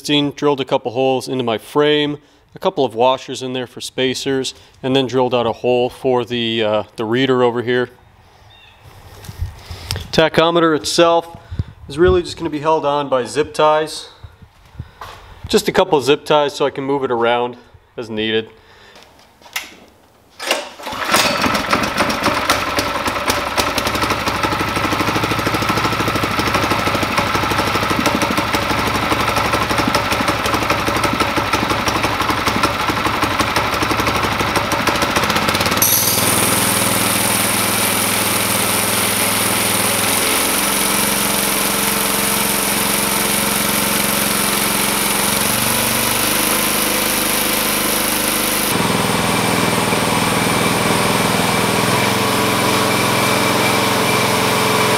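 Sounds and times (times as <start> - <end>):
pull-starting small engine: 20.4 - 54.9
small engine running unevenly: 20.8 - 54.9.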